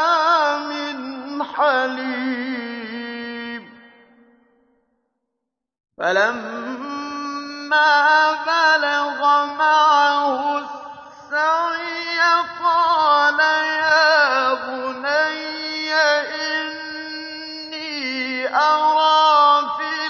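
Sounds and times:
man chanting recitation: 0.0s - 4.0s, 6.0s - 20.0s.

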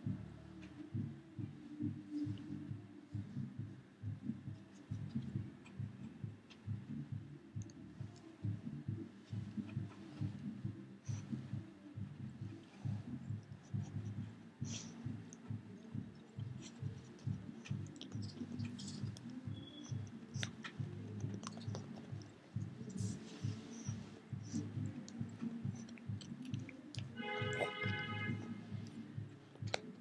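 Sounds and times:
chewing clicks and crunches: 16.1s - 23.2s.

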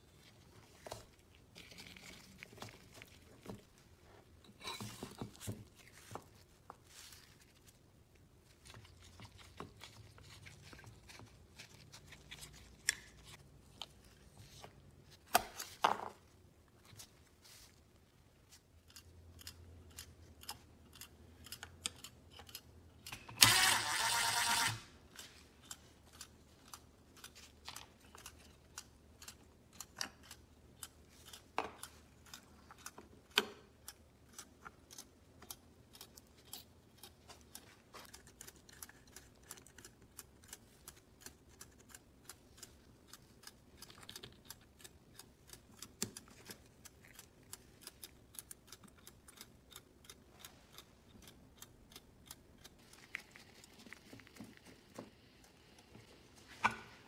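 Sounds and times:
small metallic clicks and ticks: 18.8s - 23.4s, 25.2s - 53.3s.

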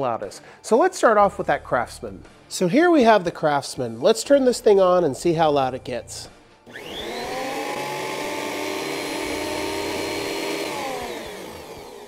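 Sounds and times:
thickness planer motor whining: 6.7s - 12.0s.

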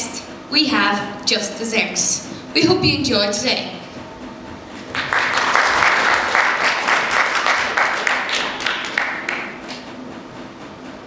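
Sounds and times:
audience applauding: 4.8s - 9.9s.

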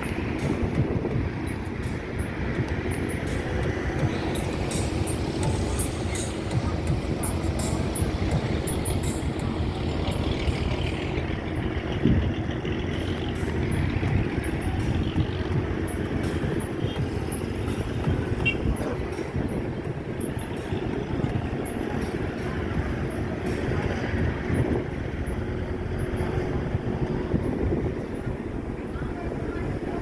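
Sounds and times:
diesel engines rumbling: 0.0s - 30.0s.

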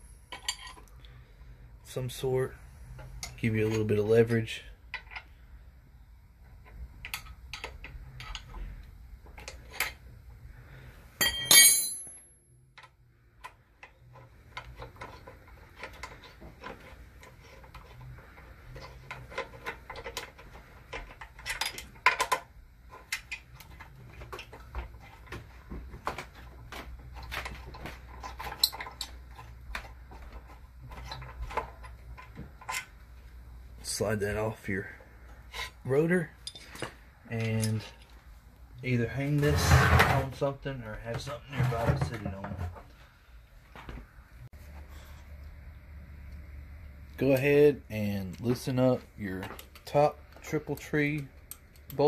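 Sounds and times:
steel tools clinking on metal: 11.2s - 12.3s.

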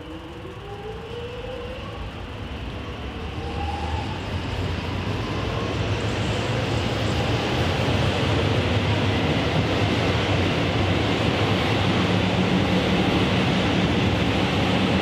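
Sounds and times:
electric train motor whine: 0.0s - 7.8s
train rumble: 0.0s - 15.0s.

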